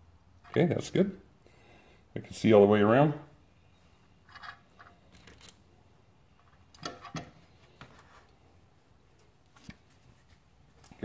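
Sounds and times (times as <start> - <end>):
metal parts clicking and knocking: 4.2 - 5.6.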